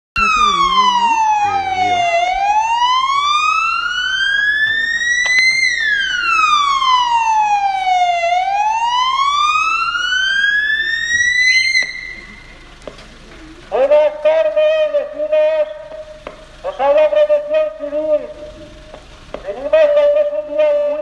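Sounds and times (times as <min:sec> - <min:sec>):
emergency siren wailing: 0:00.2 - 0:12.6, 0:13.7 - 0:18.8, 0:19.4 - 0:21.0.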